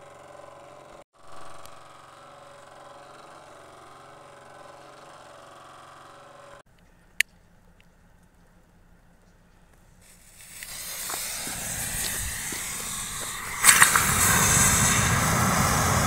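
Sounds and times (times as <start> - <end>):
steady hum: 10.1 - 16.0.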